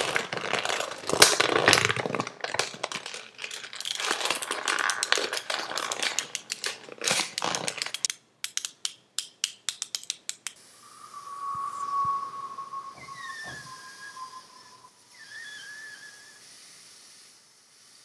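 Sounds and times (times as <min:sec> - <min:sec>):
crackling and crinkling: 0:00.0 - 0:08.8
sharp clicks: 0:06.2 - 0:10.6.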